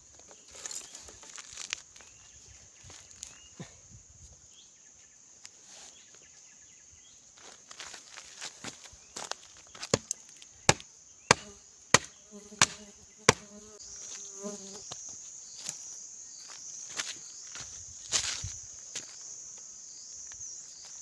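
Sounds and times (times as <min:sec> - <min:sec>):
insects buzzing: 0:00.0 - 0:21.0
twigs crackling: 0:00.2 - 0:03.4
footsteps on dry ground: 0:07.4 - 0:10.0, 0:15.6 - 0:19.3.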